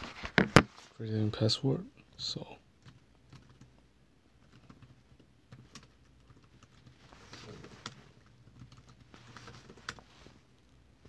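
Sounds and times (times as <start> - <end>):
keystrokes on a keyboard: 2.8 - 3.7, 4.4 - 10.0.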